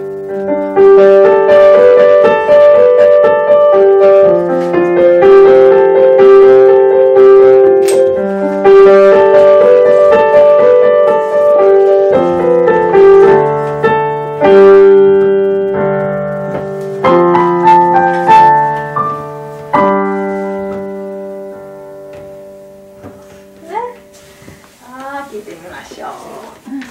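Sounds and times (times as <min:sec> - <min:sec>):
slow gentle digital piano piece: 0:00.0 - 0:26.9.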